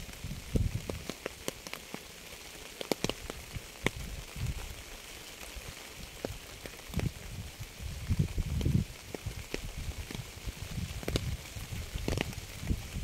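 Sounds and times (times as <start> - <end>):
rain hissing: 0.0 - 13.0
raindrops ticking: 0.0 - 13.0.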